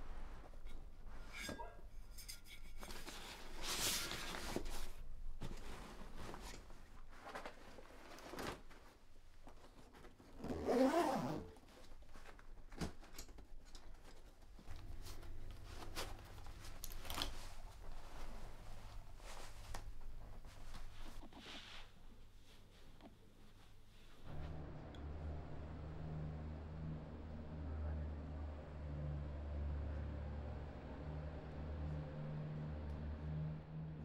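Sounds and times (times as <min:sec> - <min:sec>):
fabric rustling: 0:02.7 - 0:24.8
zips being pulled: 0:10.4 - 0:11.5.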